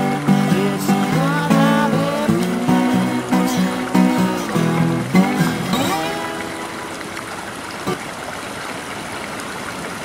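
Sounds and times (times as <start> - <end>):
instrumental guitar music: 0.0 - 8.0.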